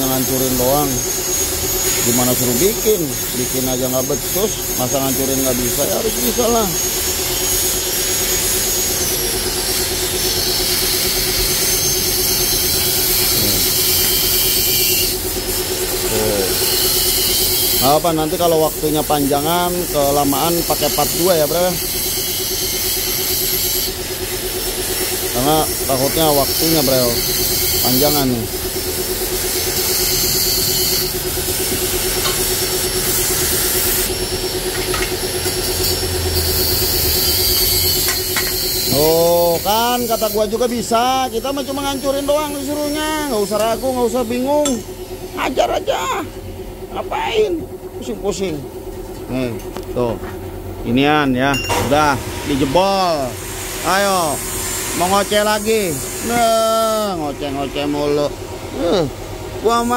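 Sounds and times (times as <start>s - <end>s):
gas cutting torch hissing: 0.0s - 45.5s, 50.9s - 59.9s
steady hum: 0.0s - 59.9s
cutting torch hissing flame: 11.6s - 15.1s.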